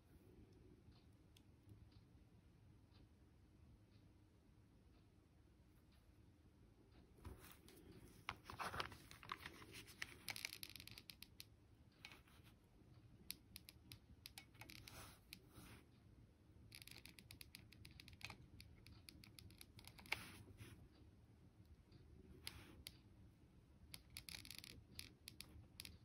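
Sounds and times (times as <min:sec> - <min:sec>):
small handling clicks: 0:07.2 - 0:12.6, 0:13.2 - 0:15.8, 0:16.7 - 0:20.6, 0:23.9 - 0:26.0.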